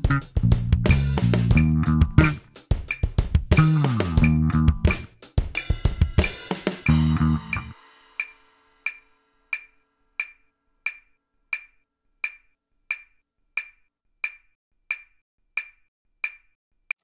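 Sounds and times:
band music: 0.0s - 2.5s, 3.5s - 5.1s, 6.2s - 7.8s.

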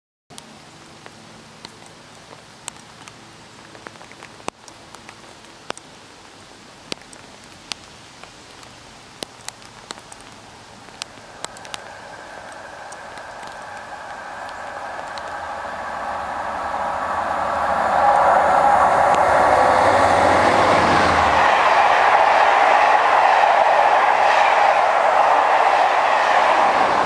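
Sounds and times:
raindrops ticking close by: 0.3s - 20.0s
rain hiss: 0.3s - 27.0s
approaching train hum: 10.2s - 27.0s.

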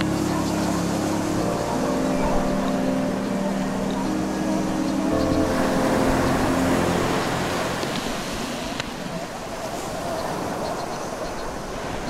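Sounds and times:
ocean surf washing on rocks: 2.6s - 12.0s.

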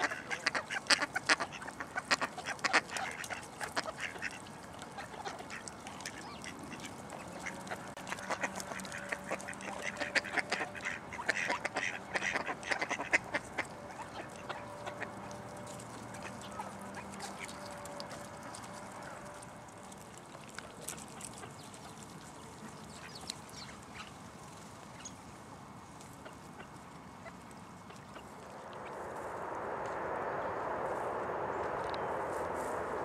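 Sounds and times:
ducks quacking: 0.0s - 19.3s.

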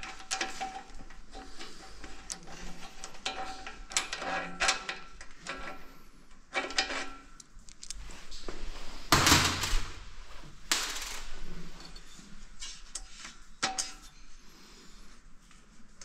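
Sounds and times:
tools and metal parts clattering: 9.1s - 10.0s, 10.7s - 12.9s.

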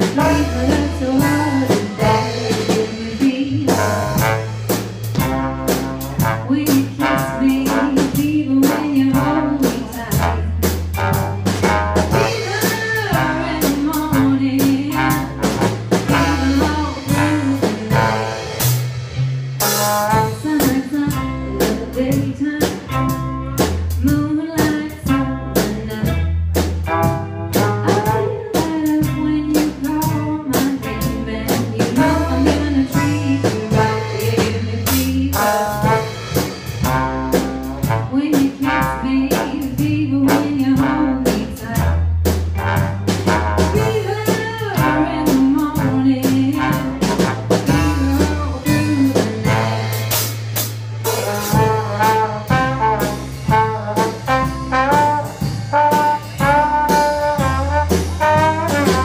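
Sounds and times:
woman singing: 0.0s - 4.3s, 6.2s - 10.5s, 12.1s - 18.4s, 20.1s - 23.3s, 23.9s - 26.3s, 27.8s - 36.1s, 37.8s - 42.0s, 43.6s - 49.8s
drum strokes: 0.0s - 21.0s, 31.6s - 41.0s, 42.2s - 59.0s
jazz blues band playing: 0.0s - 59.0s
walking bass line: 0.0s - 59.0s.

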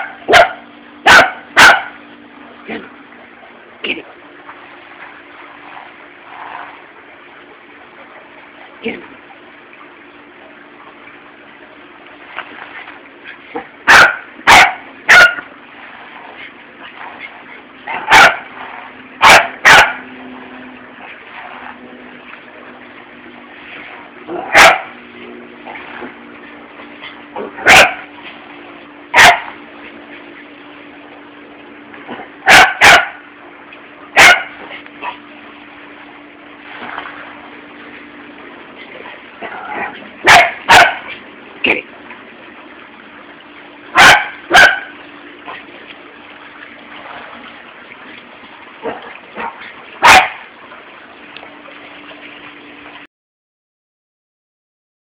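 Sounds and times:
small dog barking: 0.0s - 2.0s, 13.9s - 15.4s, 17.9s - 18.5s, 19.2s - 20.0s, 24.4s - 24.9s, 27.6s - 28.1s, 29.1s - 29.6s, 32.5s - 33.2s, 34.2s - 35.2s, 39.8s - 41.2s, 44.0s - 44.9s, 49.4s - 50.4s.

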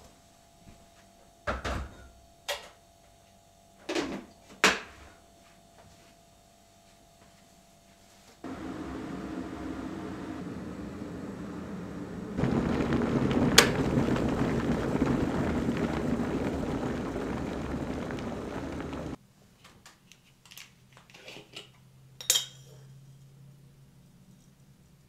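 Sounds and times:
kettle boiling water: 8.4s - 19.2s
clinks at mug: 22.2s - 22.8s.

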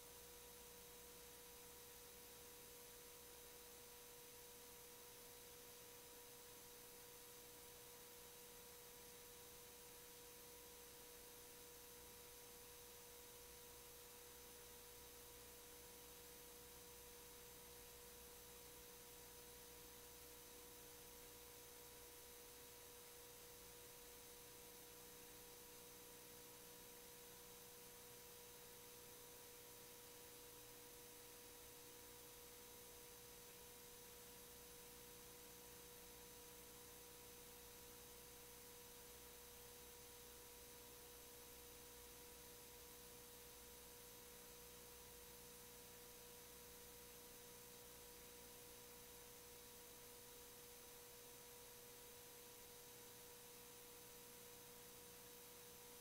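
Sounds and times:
faint steady hiss: 0.0s - 56.0s.

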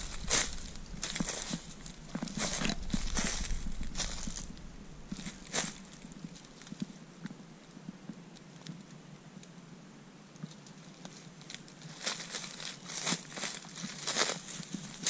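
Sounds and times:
footsteps crunching dry leaves: 0.0s - 6.8s, 11.1s - 15.0s.

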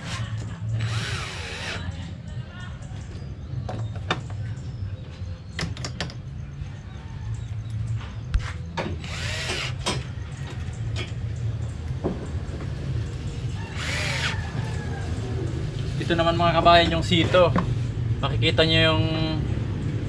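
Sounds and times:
cordless drill motor: 0.8s - 1.8s, 9.0s - 9.8s, 13.7s - 14.4s.

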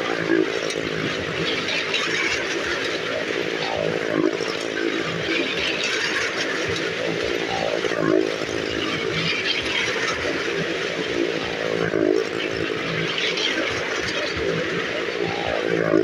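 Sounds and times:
motorcycle engine revving: 0.0s - 16.0s.

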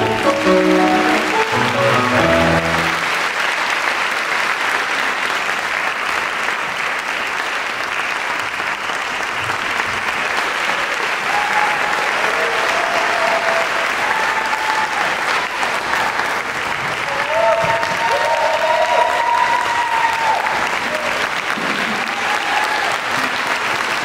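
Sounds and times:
grand piano music: 0.0s - 3.3s
audience applause: 0.0s - 24.0s.

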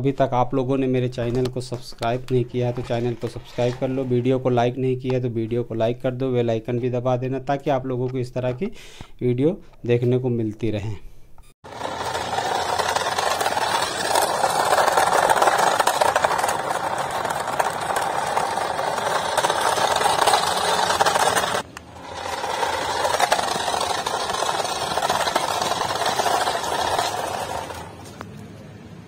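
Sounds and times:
toy car motor whirring: 11.7s - 28.0s.

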